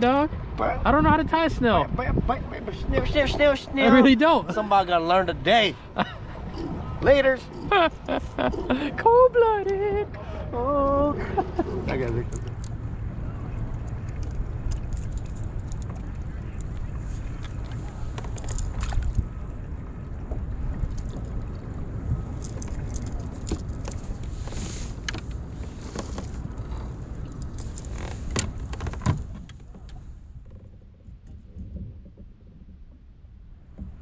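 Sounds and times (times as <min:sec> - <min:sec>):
wind rumbling on microphone: 0:00.0 - 0:34.0
fishing gear clicks and rattles: 0:11.9 - 0:12.8, 0:13.6 - 0:16.8, 0:17.4 - 0:19.2, 0:22.2 - 0:30.0.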